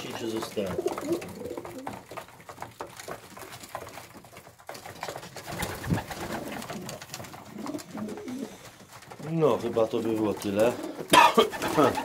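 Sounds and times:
pigeons cooing: 0.0 - 2.2, 5.4 - 9.1, 9.8 - 12.0.

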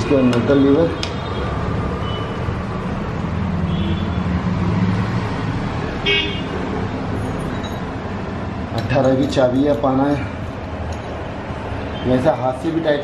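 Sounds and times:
road traffic rumble: 0.0 - 13.0
vehicle horn toot: 3.7 - 4.2, 6.0 - 6.5.

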